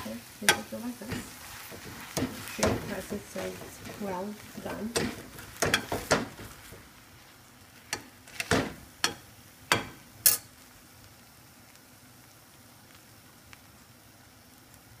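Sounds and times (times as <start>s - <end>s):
spatula knocking on a frying pan: 0.5s - 6.8s, 8.0s - 10.1s.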